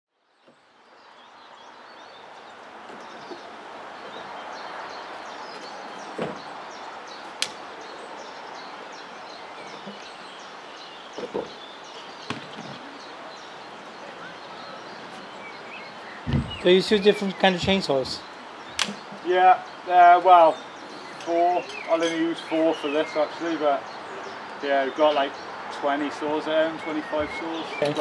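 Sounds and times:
small birds chirping: 0.2s - 28.0s
chainsaws knocking on tailgate: 16.3s - 16.6s.

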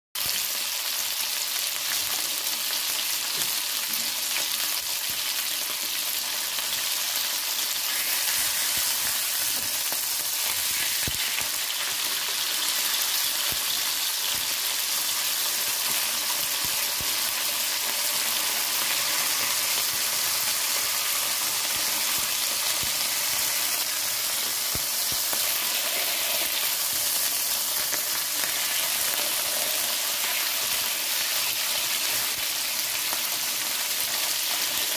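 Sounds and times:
fish sizzling in hot oil: 0.2s - 34.9s.

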